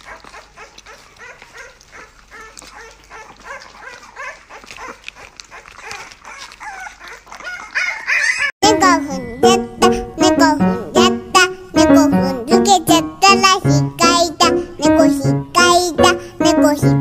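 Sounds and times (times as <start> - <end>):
puppy whimpering squeaks: 0.0 - 8.5.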